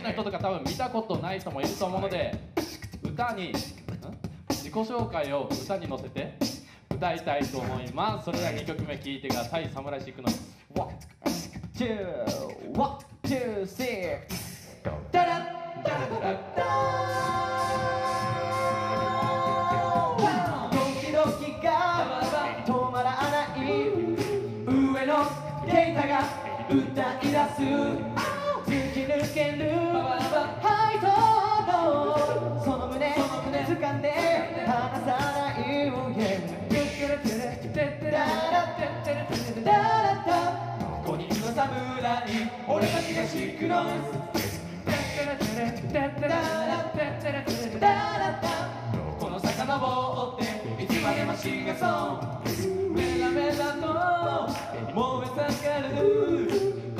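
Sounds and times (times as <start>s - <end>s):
vocal percussion beat: 0.0s - 56.9s
men singing a cappella: 15.1s - 56.9s.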